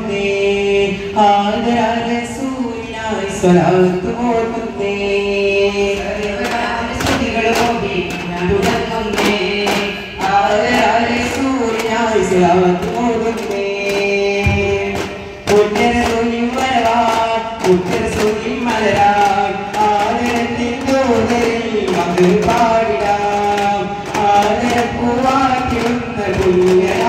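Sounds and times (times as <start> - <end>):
devotional chanting song: 0.0 - 27.0
frame drum strikes: 6.2 - 27.0.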